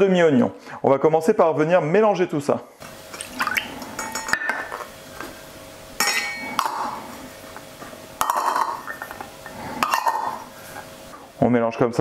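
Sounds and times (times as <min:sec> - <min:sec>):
steel bowls clinking against glass: 0:04.0 - 0:04.8, 0:06.0 - 0:07.0, 0:08.2 - 0:10.5
metallic ring: 0:06.0 - 0:06.6.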